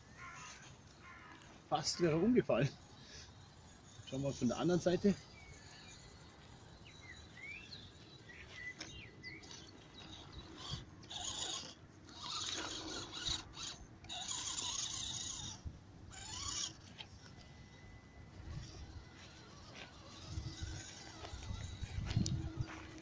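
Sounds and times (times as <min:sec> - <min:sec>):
electric motor and gearbox whining: 0:00.0 - 0:23.0.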